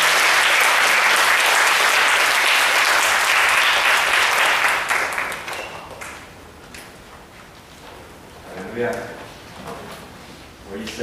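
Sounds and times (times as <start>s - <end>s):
crowd applauding: 0.0s - 6.3s.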